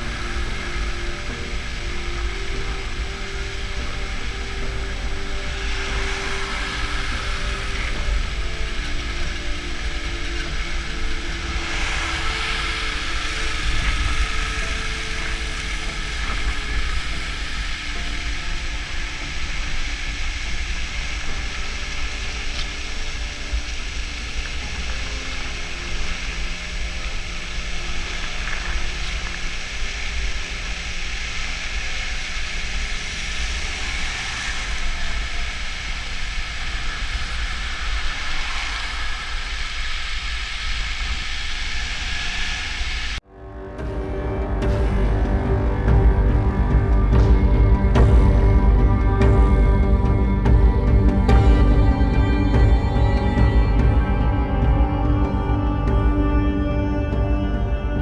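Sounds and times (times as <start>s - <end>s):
vehicles passing: 0.0s - 40.6s
wind rumble on microphone: 0.0s - 58.0s.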